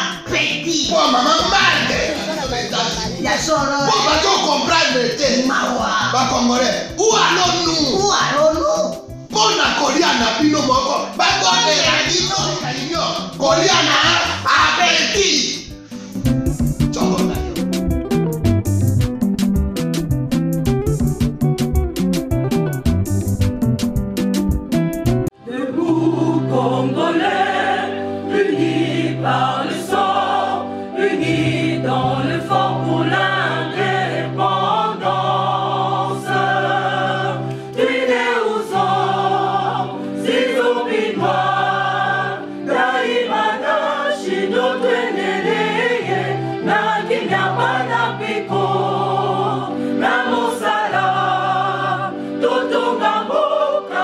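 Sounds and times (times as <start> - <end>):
gospel choir singing: 0.0 - 16.3, 16.9 - 17.6, 25.3 - 54.0
held bass chords: 15.8 - 25.3.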